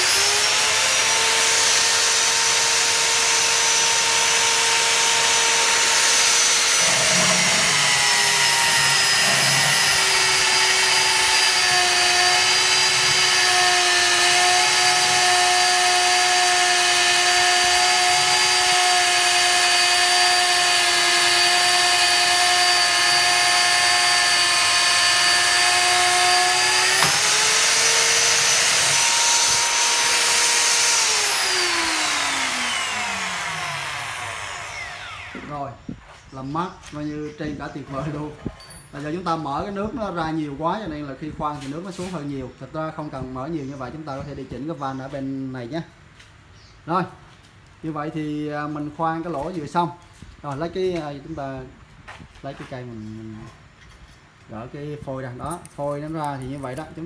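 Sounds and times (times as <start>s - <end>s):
magnetic drill cutting steel: 0.0s - 35.6s.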